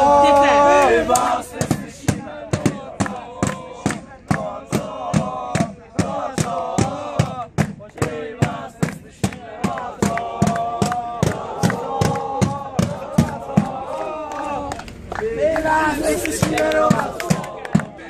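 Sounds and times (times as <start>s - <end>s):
men chanting together: 0.0s - 18.0s
hand clapping: 0.8s - 7.0s, 7.6s - 18.0s
large drum beating: 1.6s - 14.0s.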